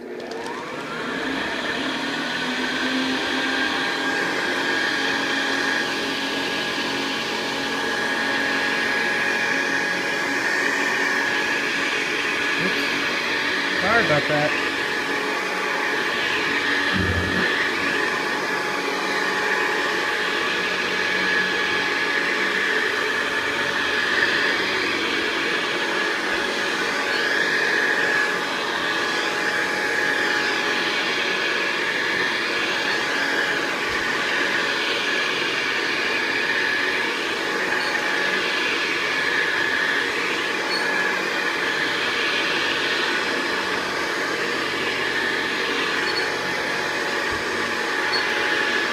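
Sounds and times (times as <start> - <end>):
vacuum cleaner running: 0.0 - 48.9.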